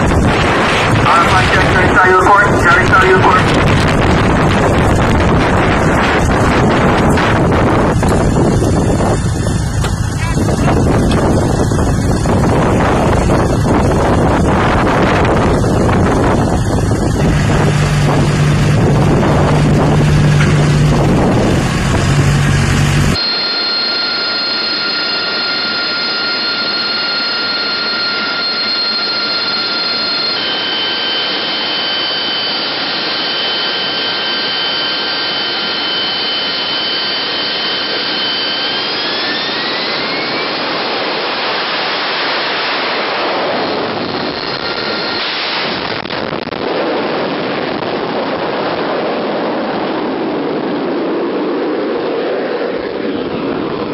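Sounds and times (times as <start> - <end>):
low engine hum: 0.0 - 23.2
wind buffeting microphone: 0.0 - 23.2, 43.5 - 53.9
jet engine whine and rush: 0.0 - 53.9.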